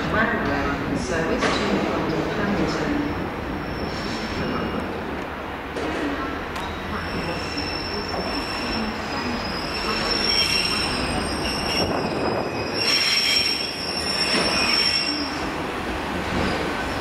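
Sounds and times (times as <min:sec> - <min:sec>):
train rumble: 0:00.0 - 0:17.0
train wheels squealing on rails: 0:03.6 - 0:04.9, 0:06.6 - 0:15.5.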